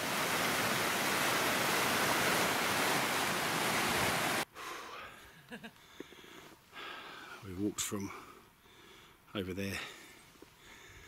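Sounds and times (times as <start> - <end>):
stream rushing over rocks: 0.0 - 4.4.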